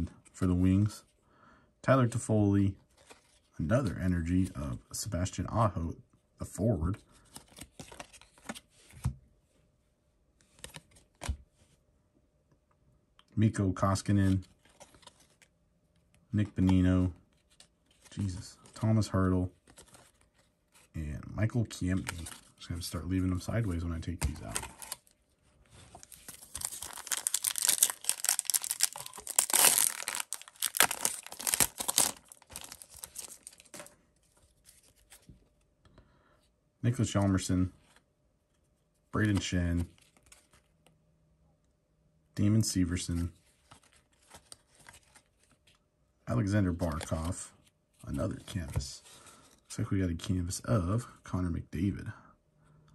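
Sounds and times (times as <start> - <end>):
cards clicking and rustling: 7.3 - 9.1, 21.9 - 22.5, 23.6 - 25.0, 25.9 - 34.0
wrapper tearing and crinkling: 26.0 - 33.9.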